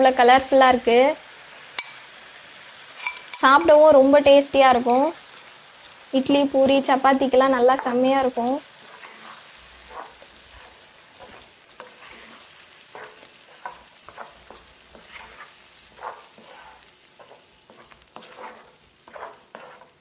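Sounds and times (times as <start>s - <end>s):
paste sizzling in a pan: 0.0s - 20.0s
spatula scraping a pan: 7.7s - 20.0s.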